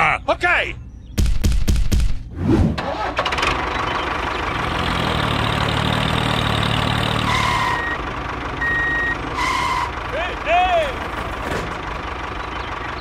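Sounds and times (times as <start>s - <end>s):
diesel tractor engine idling: 2.9s - 13.0s.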